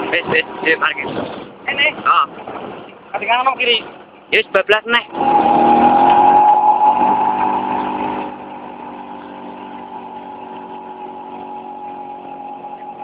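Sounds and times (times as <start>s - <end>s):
scooter engine running: 5.1s - 13.0s.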